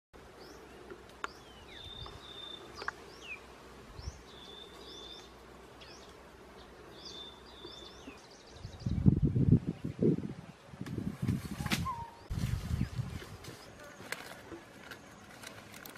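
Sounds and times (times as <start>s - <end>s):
birds chirping and whistling: 1.3s - 6.2s, 6.9s - 10.0s, 11.2s - 13.8s.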